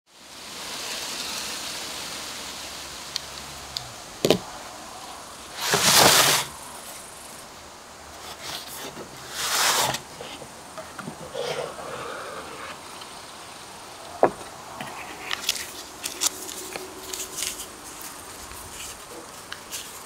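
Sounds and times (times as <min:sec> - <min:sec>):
steady hiss: 0:00.1 - 0:20.0
cardboard boxes scraping on wood: 0:05.5 - 0:06.5, 0:08.2 - 0:12.9.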